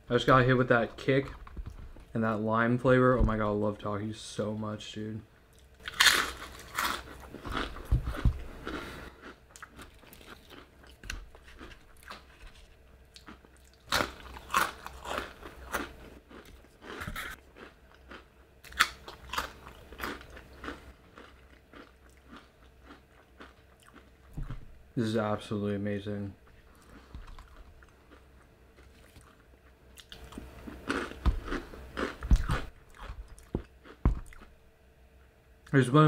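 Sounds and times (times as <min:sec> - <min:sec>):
person chewing crunchy food: 0:05.5 - 0:24.6, 0:26.4 - 0:34.6.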